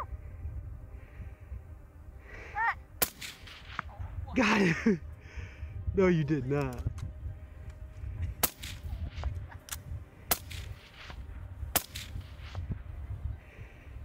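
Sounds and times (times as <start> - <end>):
steady low rumble: 0.0 - 14.0
rifle shots: 3.0 - 3.9, 8.4 - 12.7.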